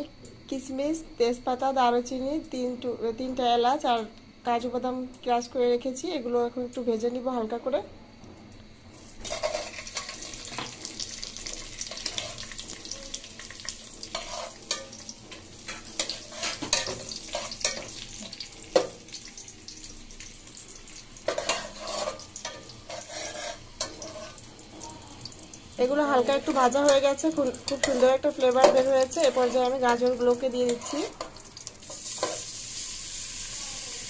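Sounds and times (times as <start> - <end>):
food sizzling in hot ghee: 8.6 - 34.0
metal spatula scraping a pot: 9.2 - 10.8, 11.4 - 13.0, 14.0 - 18.9, 21.2 - 24.5, 26.2 - 32.5.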